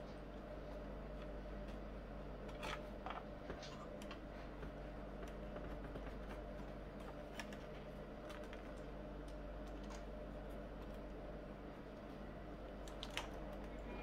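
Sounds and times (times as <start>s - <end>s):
steady low hum: 0.0s - 14.0s.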